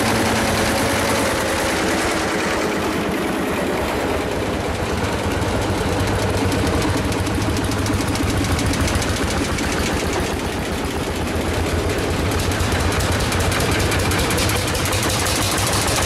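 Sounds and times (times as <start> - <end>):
tractor engines chugging: 0.0 - 16.0.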